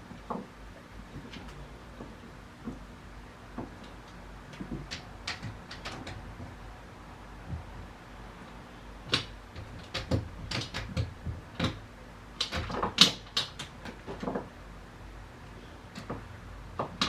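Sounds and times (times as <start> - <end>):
dog claws clicking on wood floor: 3.8 - 6.6, 9.1 - 11.8.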